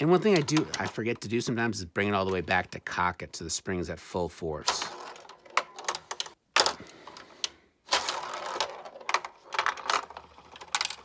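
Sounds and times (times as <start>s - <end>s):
marble clattering through plastic: 4.7s - 7.3s, 7.9s - 11.0s.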